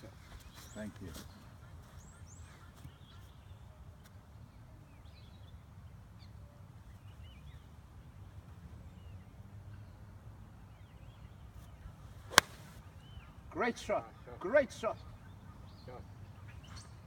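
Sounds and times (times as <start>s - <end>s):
birds chirping faintly: 0.0s - 17.0s
golf club striking ball: 12.3s - 12.8s.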